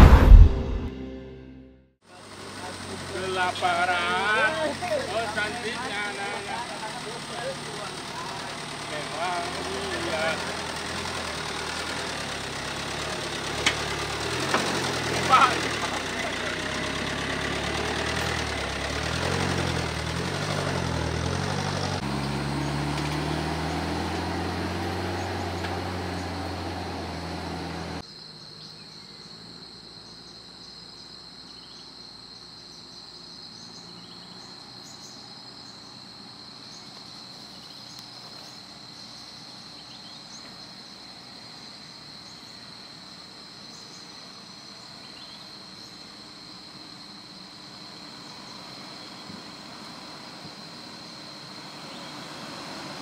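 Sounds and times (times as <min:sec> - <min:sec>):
off-road vehicle engine running: 0:02.1 - 0:28.0, 0:32.7 - 0:53.0
high insect drone: 0:23.7 - 0:53.0
short insect chirps: 0:28.0 - 0:53.0.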